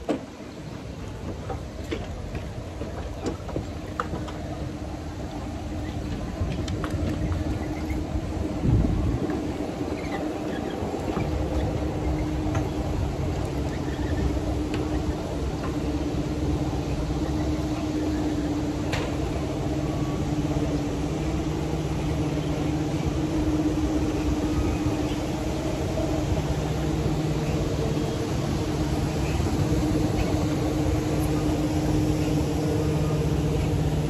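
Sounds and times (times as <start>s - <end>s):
low mechanical hum: 0.0s - 34.0s.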